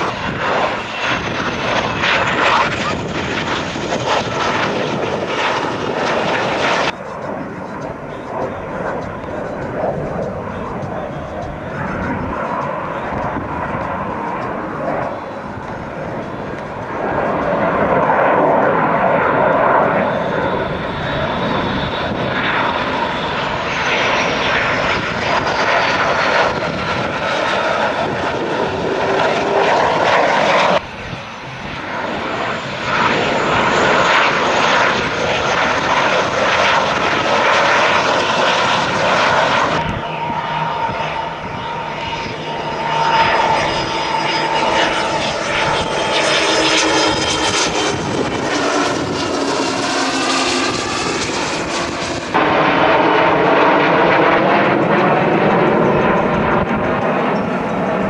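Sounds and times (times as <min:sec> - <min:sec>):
fighter jet engines whining: 0:00.0 - 0:58.0
small jet engines steady whine: 0:00.0 - 0:58.0.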